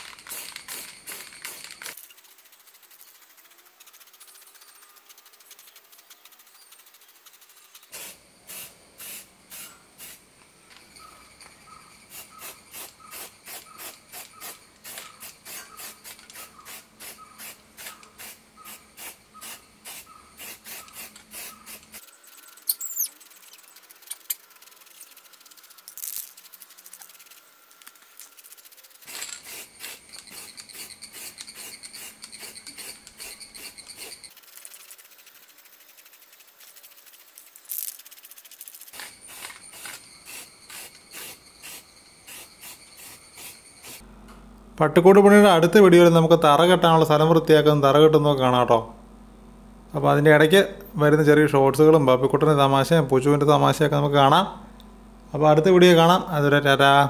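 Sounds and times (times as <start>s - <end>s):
spray can hissing: 0.0s - 10.3s, 12.1s - 44.0s.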